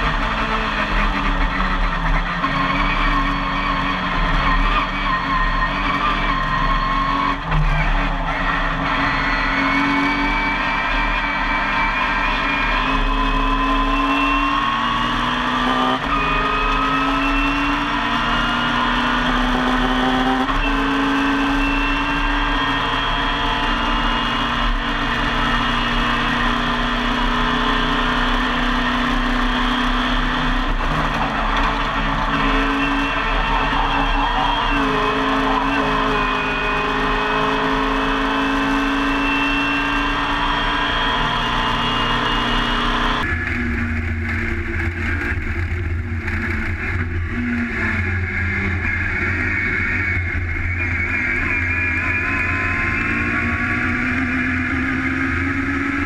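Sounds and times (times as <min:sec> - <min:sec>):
race car engine at full throttle: 0:00.0 - 0:56.0.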